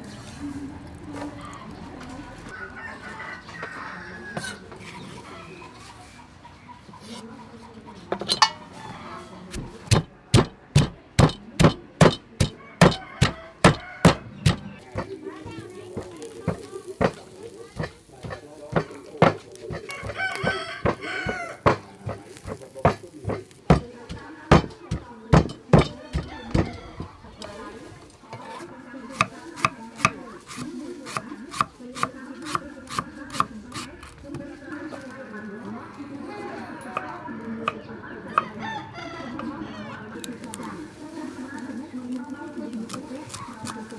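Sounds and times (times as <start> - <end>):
cleaver chopping on wooden block: 9.6 - 14.7
wooden pestle pounding in mortar: 9.6 - 15.1, 17.8 - 26.8.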